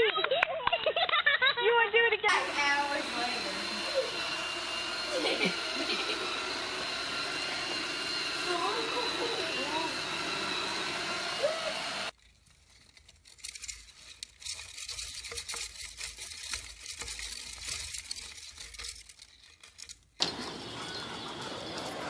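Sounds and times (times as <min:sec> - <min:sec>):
robot vacuum whirring: 0:02.3 - 0:12.2, 0:20.2 - 0:22.0
hamsters rustling in bedding: 0:12.1 - 0:20.0.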